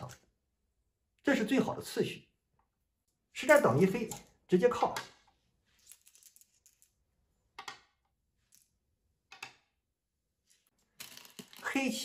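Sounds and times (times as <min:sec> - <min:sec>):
game stones clicking on board: 0:11.0 - 0:11.9.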